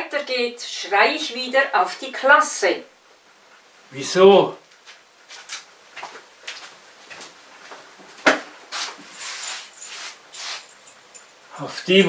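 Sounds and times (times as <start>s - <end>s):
person walking and rustling: 4.7s - 11.3s.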